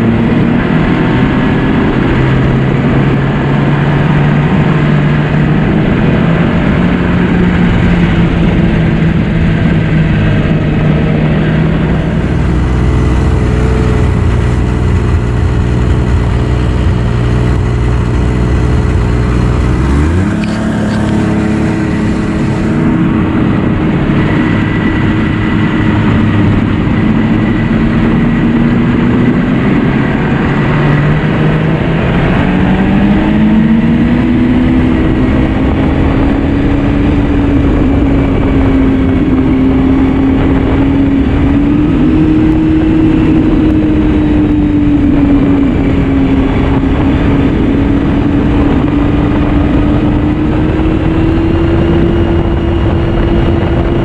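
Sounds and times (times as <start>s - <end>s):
snowmobile engine running: 0.0s - 54.0s.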